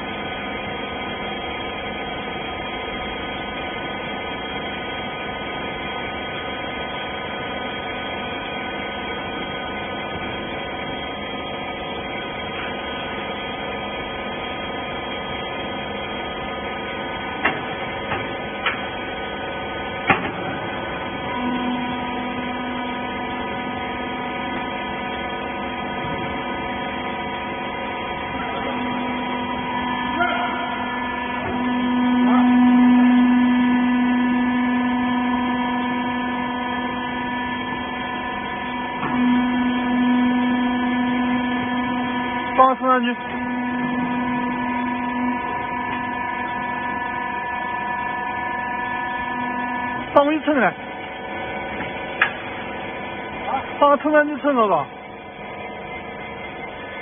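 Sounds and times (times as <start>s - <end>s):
hydraulic power unit humming: 0.0s - 57.0s.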